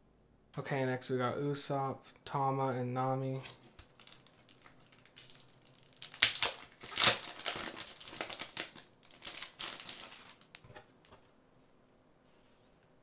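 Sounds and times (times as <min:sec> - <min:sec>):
packaging crinkling and rustling: 0:03.4 - 0:11.3.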